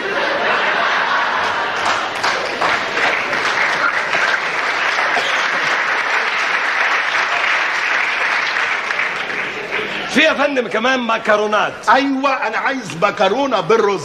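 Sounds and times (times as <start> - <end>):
audience applauding: 0.8 - 10.7.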